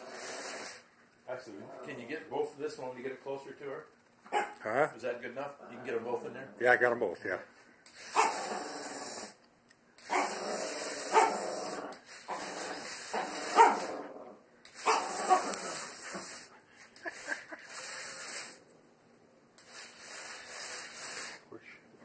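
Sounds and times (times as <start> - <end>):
dog barking: 4.3 - 4.6, 11.1 - 11.4, 13.6 - 13.9
steady hiss: 14.7 - 18.7, 19.6 - 22.0.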